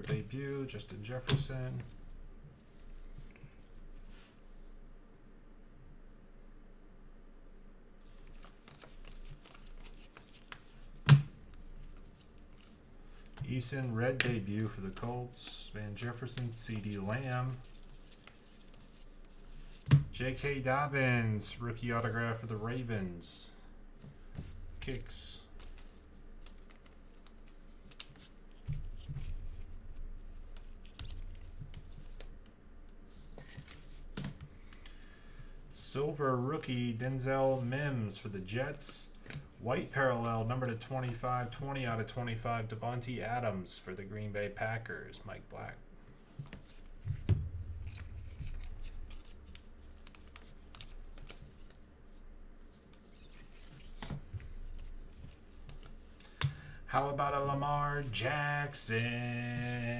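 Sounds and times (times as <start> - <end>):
trading cards shuffling: 8.0 - 19.8, 24.4 - 34.4, 46.4 - 51.9
cards sliding and rustling: 8.1 - 11.0, 46.4 - 51.8.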